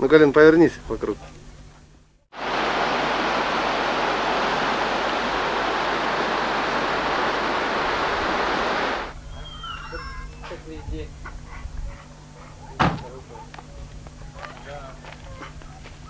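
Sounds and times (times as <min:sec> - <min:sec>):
river water rushing over stones: 0:02.4 - 0:09.1.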